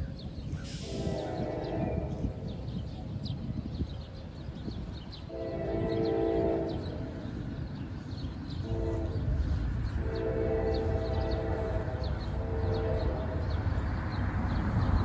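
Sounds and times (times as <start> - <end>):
low rumble of approaching train: 0.0 - 15.0
train air horn blasts: 0.7 - 2.4, 5.3 - 7.0, 8.6 - 13.5.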